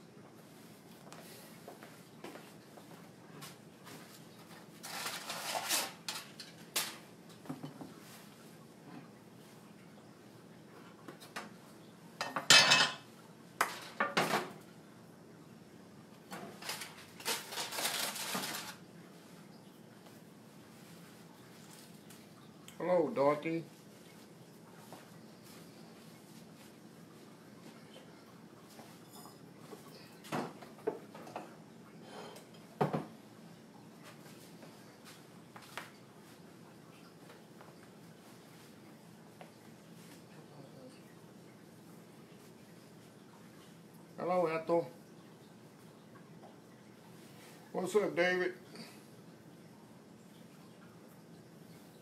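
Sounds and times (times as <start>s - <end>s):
pan and utensils clattering: 4.8s - 7.9s, 12.2s - 14.6s, 16.3s - 18.8s.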